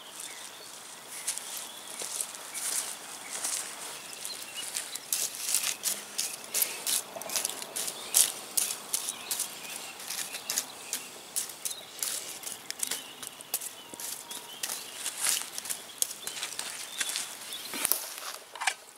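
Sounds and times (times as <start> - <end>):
campfire crackling and popping: 4.9 - 13.8, 14.6 - 17.2.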